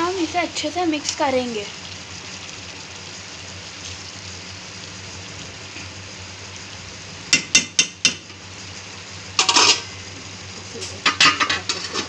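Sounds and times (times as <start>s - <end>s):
noodles sizzling in a pan: 0.0s - 12.0s
metal spatula knocking on pan: 7.3s - 8.2s.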